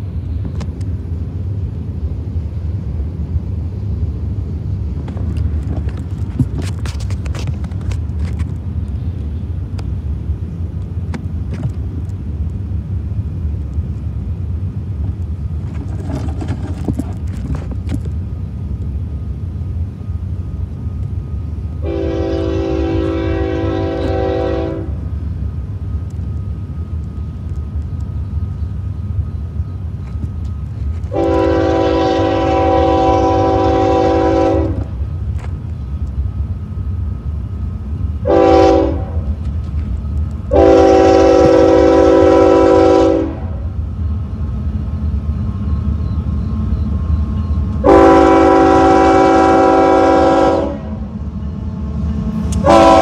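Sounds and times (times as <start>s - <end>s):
steady low train rumble: 0.0s - 53.0s
locomotive horn blast: 21.8s - 25.0s, 31.1s - 35.0s, 38.2s - 39.3s, 40.5s - 43.7s, 47.8s - 51.1s, 52.5s - 53.0s.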